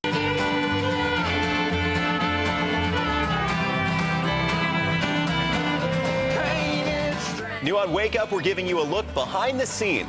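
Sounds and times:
fiddle bowed in long notes: 0:00.0 - 0:06.9.

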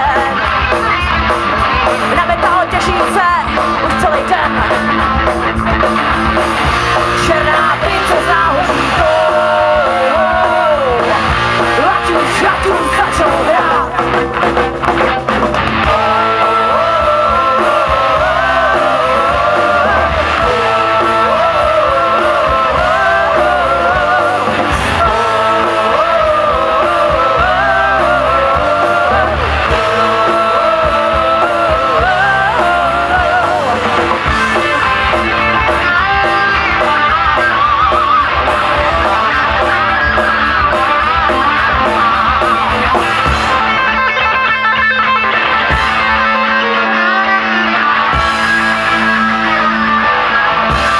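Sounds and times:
person singing: 0:00.0 - 0:00.9, 0:01.8 - 0:04.9, 0:07.0 - 0:14.0, 0:15.8 - 0:43.4
live rock band playing: 0:00.0 - 0:50.9.

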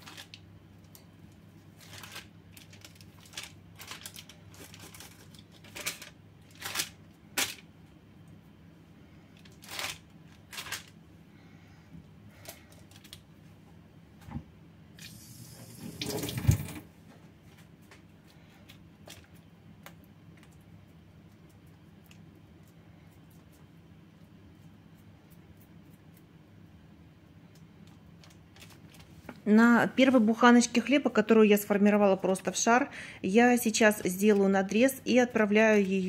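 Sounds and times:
parchment paper rustling: 0:00.0 - 0:07.7, 0:09.3 - 0:11.0, 0:27.8 - 0:29.4
hands kneading wet dough: 0:17.6 - 0:26.6.

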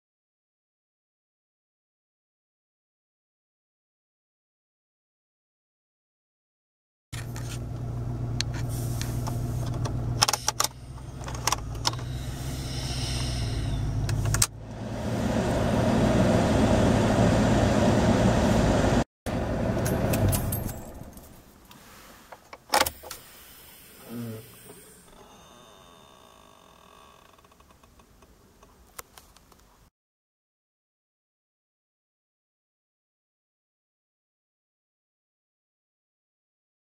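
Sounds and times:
blower hum: 0:07.2 - 0:20.5.

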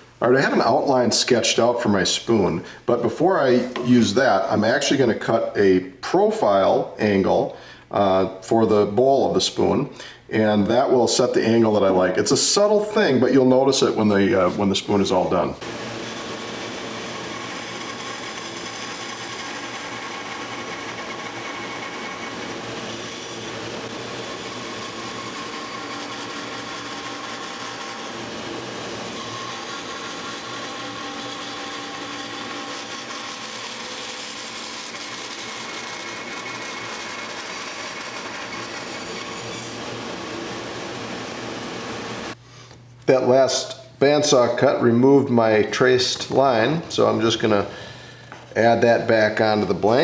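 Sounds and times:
bandsaw cutting wood: 0:15.6 - 0:42.4.

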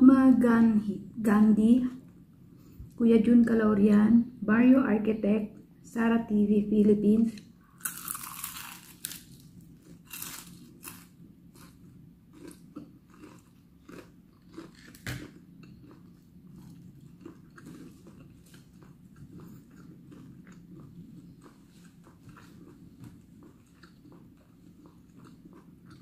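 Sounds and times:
chewing fried chicken crunches: 0:07.7 - 0:26.0.

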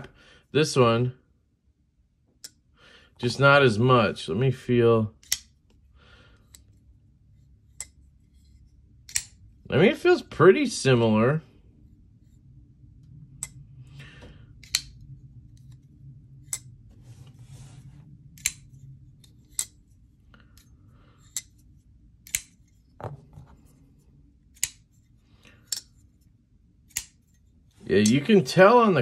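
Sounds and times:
folding knife blade clicking: 0:18.4 - 0:18.7, 0:22.2 - 0:22.6, 0:26.9 - 0:27.2.

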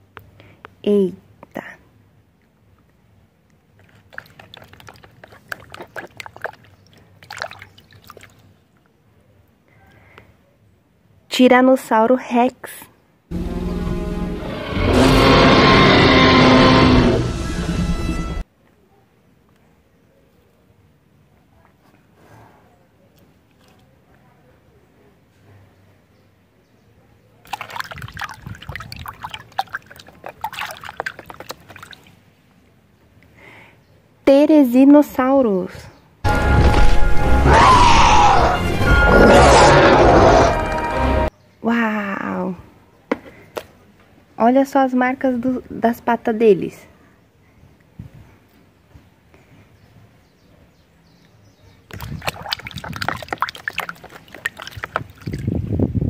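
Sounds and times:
water splashing in plastic bucket: 0:03.8 - 0:08.4, 0:27.4 - 0:32.2, 0:51.9 - 0:55.7.

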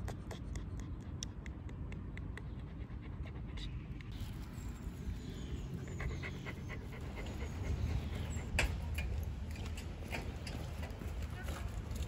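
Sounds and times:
dog panting: 0:05.7 - 0:08.6.

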